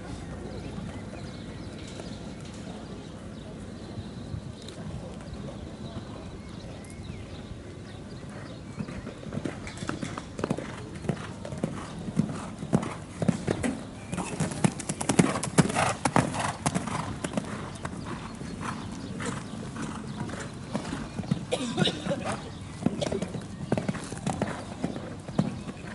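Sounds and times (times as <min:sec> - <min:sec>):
horse hooves pounding sand: 0:08.0 - 0:25.9.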